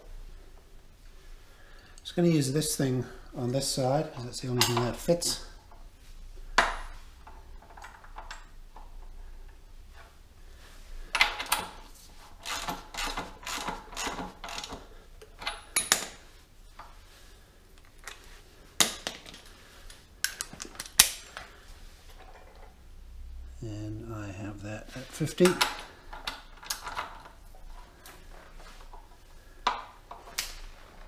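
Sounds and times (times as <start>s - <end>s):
ratchet clattering on floor: 11.1s - 16.2s
ratchet clicking: 12.4s - 14.8s.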